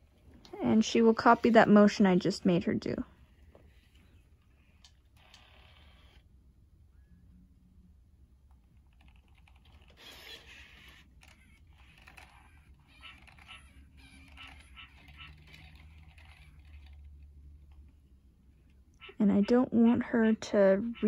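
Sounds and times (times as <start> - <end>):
robot joint motors whirring: 9.0 - 17.2.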